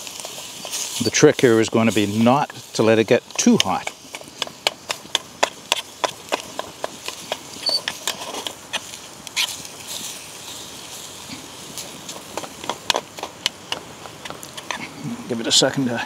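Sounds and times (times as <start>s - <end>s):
food sizzling: 0.0s - 16.0s
wood fire crackling: 0.0s - 16.0s
metal spatula scraping frying pan: 7.6s - 10.0s.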